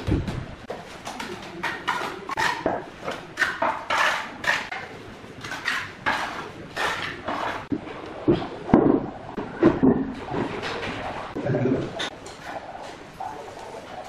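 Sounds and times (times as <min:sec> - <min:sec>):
trowel scraping wet mortar: 0:01.6 - 0:02.8, 0:03.4 - 0:07.7.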